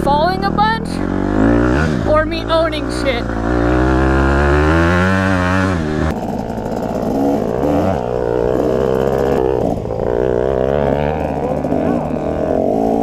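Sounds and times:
motorcycle engine revving: 0.0s - 13.0s.

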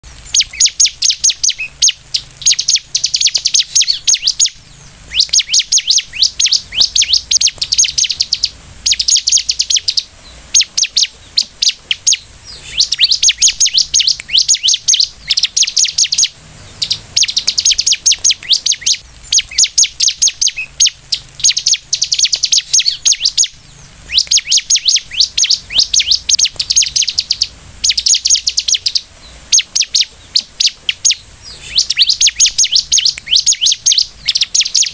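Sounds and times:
bird singing rapid high chirps: 0.0s - 34.9s.

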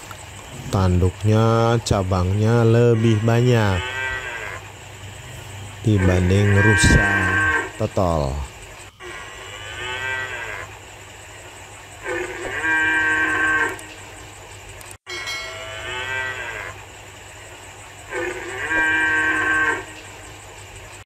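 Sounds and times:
deer calling: 2.1s - 10.6s.

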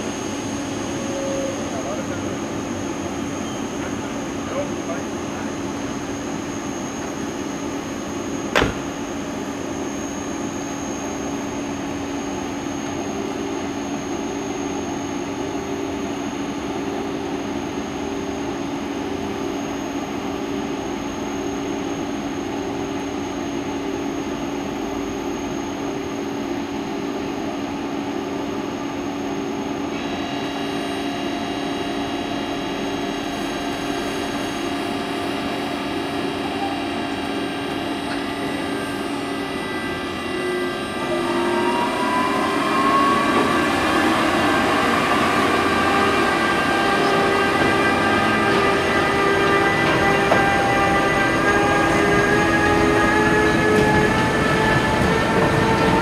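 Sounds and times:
cooling blowers droning: 0.0s - 56.0s
sharp knock: 8.5s - 9.1s
high multi-note whine: 29.4s - 55.4s.

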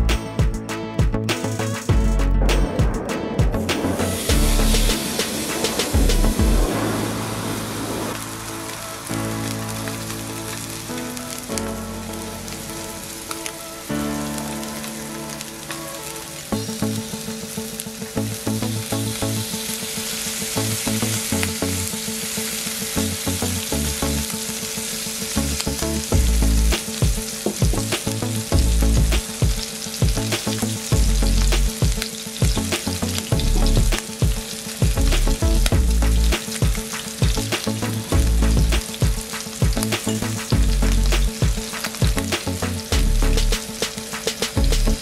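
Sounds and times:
low bass pulses: 1.9s - 5.1s, 6.0s - 8.2s, 26.1s - 26.8s, 28.5s - 29.2s, 30.9s - 31.7s, 33.3s - 34.0s, 35.0s - 36.4s, 38.1s - 38.8s, 40.5s - 41.3s, 42.9s - 43.6s
steak sizzling in frying pan: 3.9s - 45.0s
popping and crackling oil: 7.6s - 45.0s.

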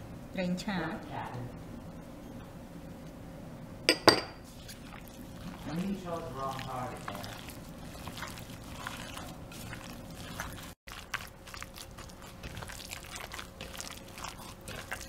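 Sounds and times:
wet squelching of marinated meat: 4.5s - 15.0s.

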